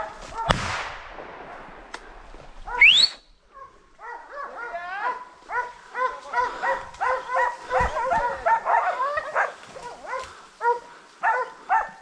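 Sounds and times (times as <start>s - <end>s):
dogs baying and yelping: 2.6s - 12.0s.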